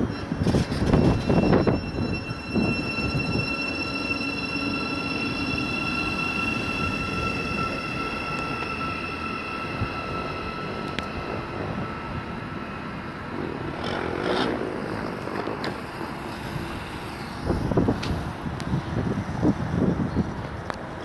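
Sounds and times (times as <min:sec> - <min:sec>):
electric train whine: 0:00.0 - 0:21.0
wind buffeting microphone: 0:00.1 - 0:03.5, 0:16.4 - 0:21.0.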